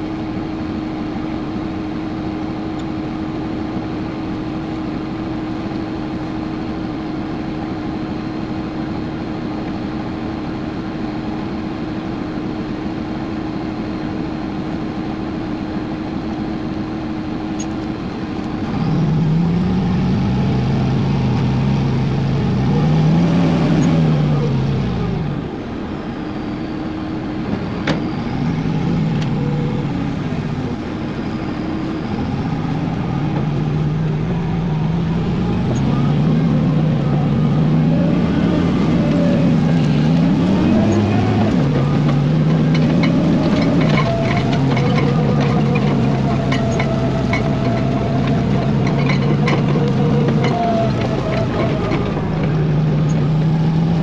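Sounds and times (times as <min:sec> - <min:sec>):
tractor diesel engine revving: 0:17.6 - 0:54.0.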